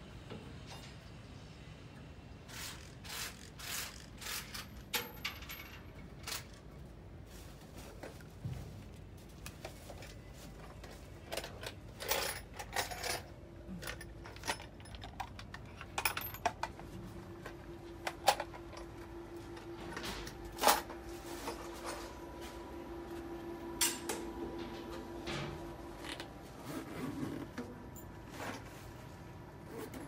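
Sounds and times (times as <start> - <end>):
steady hum: 15.6 - 29.7.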